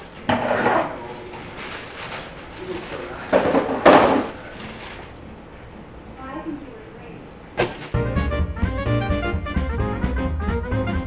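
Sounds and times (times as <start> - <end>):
plastic bread bag rustling: 0.0 - 5.7, 7.6 - 8.0.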